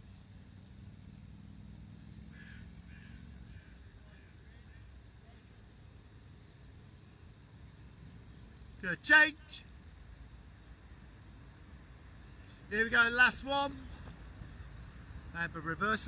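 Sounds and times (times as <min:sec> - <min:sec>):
faint bird calls: 0:00.0 - 0:09.8
low steady rumble: 0:00.0 - 0:16.0.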